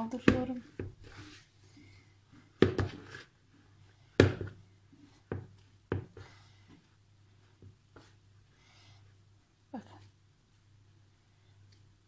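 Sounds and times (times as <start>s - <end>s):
spoon stirring stiff dough: 0.0s - 9.2s.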